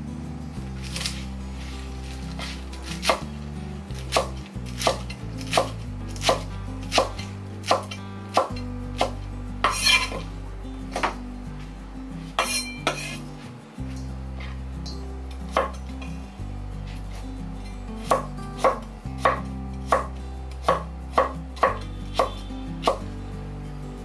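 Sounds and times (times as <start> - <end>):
knife chopping on wooden board: 2.9 - 3.3, 4.1 - 10.2.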